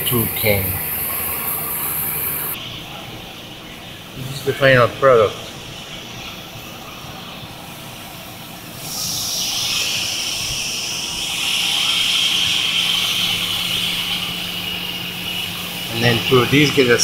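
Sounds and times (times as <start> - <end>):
low hum: 0.0 - 3.4
steady hiss: 0.0 - 17.0.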